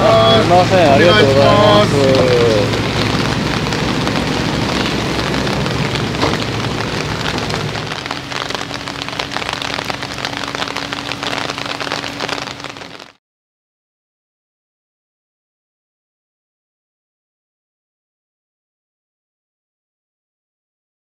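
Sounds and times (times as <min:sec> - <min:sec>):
heavy rain pattering: 0:00.0 - 0:13.2
low rumble: 0:00.0 - 0:13.2.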